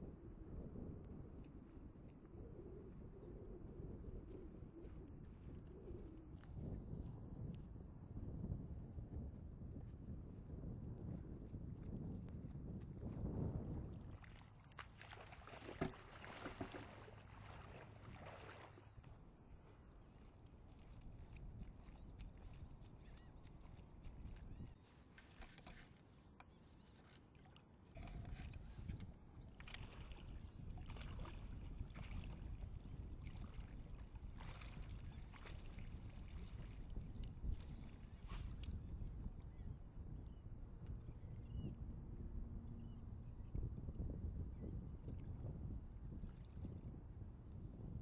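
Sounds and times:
wind rumble on microphone: 0.0s - 24.8s, 27.9s - 48.0s
feet wading through shallow water: 13.8s - 26.0s, 26.6s - 39.6s.

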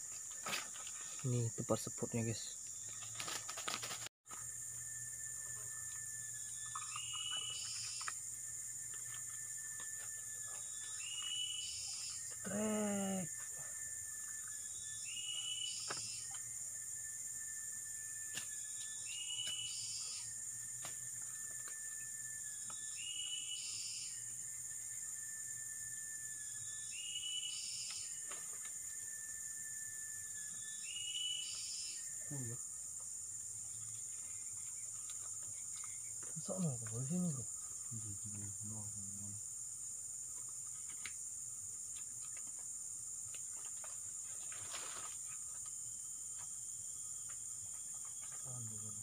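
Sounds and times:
insects buzzing drone: 0.0s - 49.0s
low voice: 12.4s - 13.3s.

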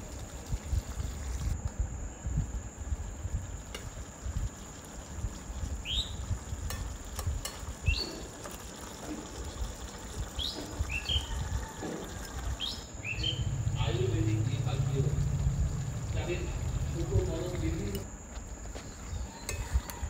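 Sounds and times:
bird chirping: 5.8s - 6.2s, 7.8s - 8.2s, 10.4s - 11.3s, 12.6s - 14.5s
low rumble: 12.9s - 18.0s.

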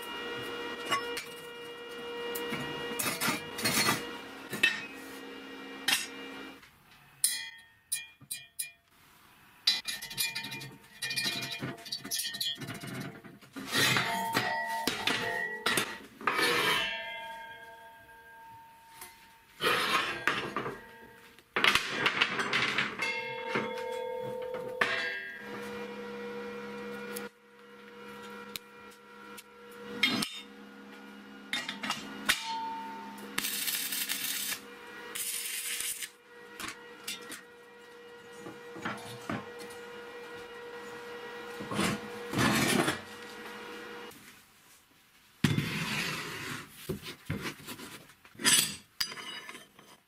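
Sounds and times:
arc welding crackling: 33.3s - 36.2s.

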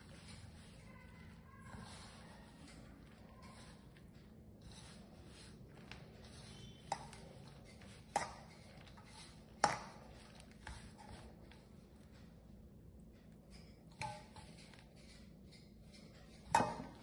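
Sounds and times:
hands rubbing dough: 0.0s - 12.4s.

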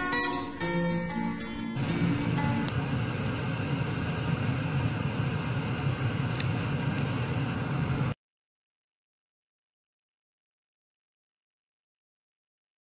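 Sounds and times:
steady low rumble: 1.4s - 8.2s.

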